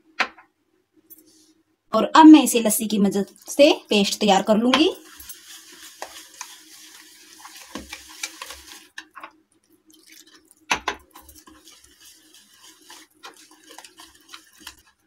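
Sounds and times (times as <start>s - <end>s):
whisk stirring batter in a bowl: 4.8s - 15.0s.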